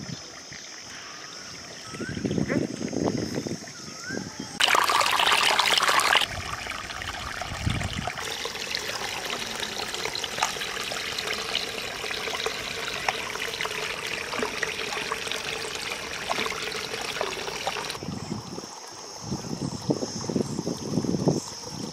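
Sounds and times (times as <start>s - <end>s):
small water splashes: 4.6s - 19.2s
water trickling and pouring: 4.6s - 21.9s.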